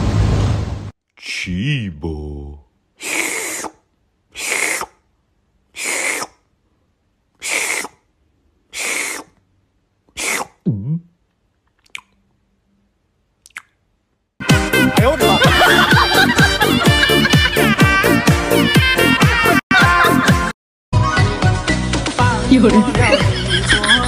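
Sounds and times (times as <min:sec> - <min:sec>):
breathy gulping sounds: 0:07.4 - 0:08.0, 0:08.7 - 0:09.4, 0:10.1 - 0:12.3, 0:13.4 - 0:13.8.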